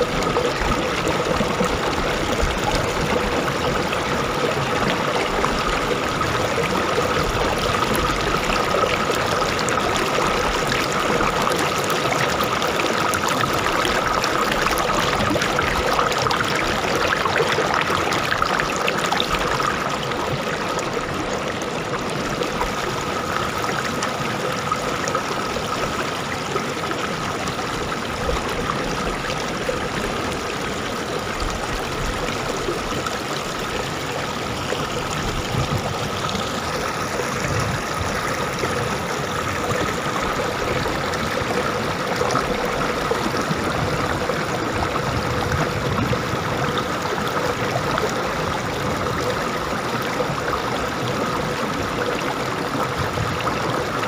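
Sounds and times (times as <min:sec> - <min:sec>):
river rushing over stones: 0:00.0 - 0:54.0.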